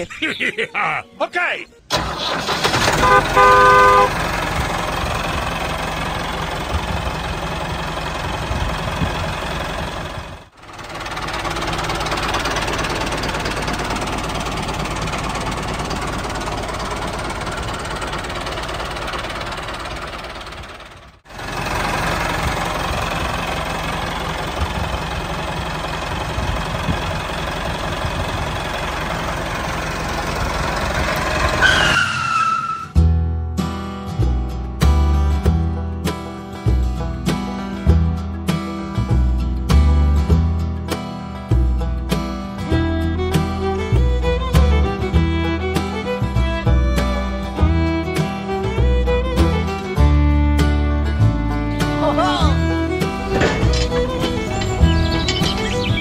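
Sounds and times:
tractor engine running: 0.0 - 32.0, 32.9 - 56.0
horn tooting: 1.0 - 4.3.

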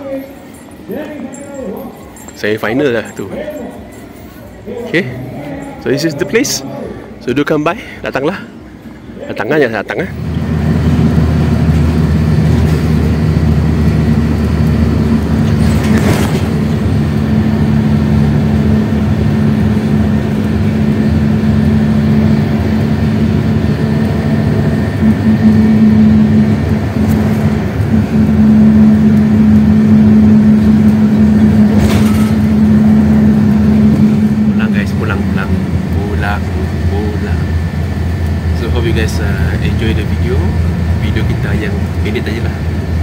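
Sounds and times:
bus engine and road noise: 0.0 - 43.0.

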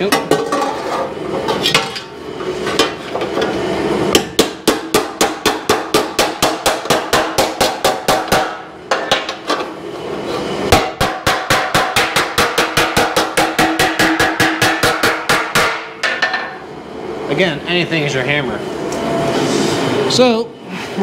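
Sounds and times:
hammer striking sheet metal: 4.1 - 9.4, 10.7 - 16.6.

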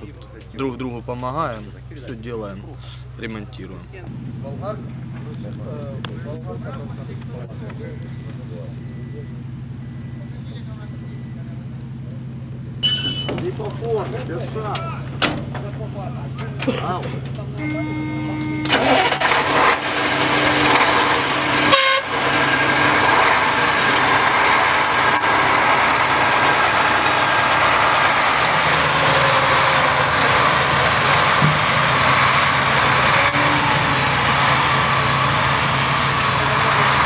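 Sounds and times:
truck engine running: 0.0 - 37.0.

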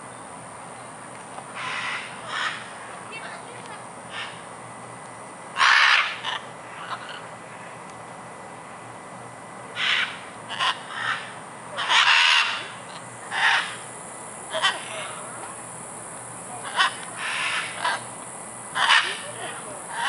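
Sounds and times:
macaws squawking: 1.6 - 2.8, 4.1 - 4.4, 5.6 - 7.3, 9.8 - 13.9, 14.5 - 15.3, 16.6 - 18.1, 18.7 - 20.0.

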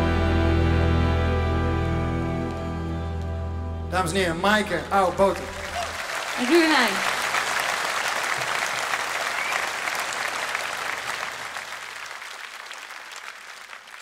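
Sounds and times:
large audience applauding: 4.6 - 14.0.

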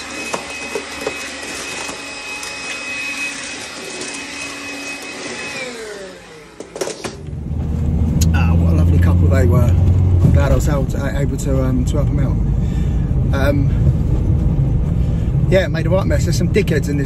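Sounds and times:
vacuum cleaner whine: 0.0 - 8.1.

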